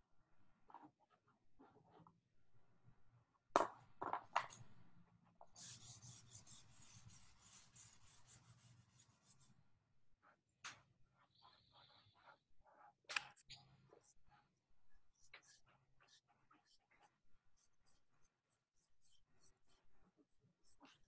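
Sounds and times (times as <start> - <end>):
pencil scratching on paper: 5.5 - 9.6, 13.7 - 21.0.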